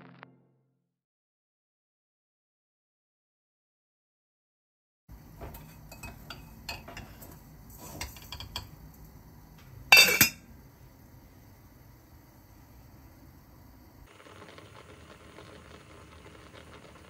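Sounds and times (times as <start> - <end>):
lid clanging on pan: 5.4 - 8.8, 9.9 - 10.4
saucepan metallic clinks: 9.9 - 10.4.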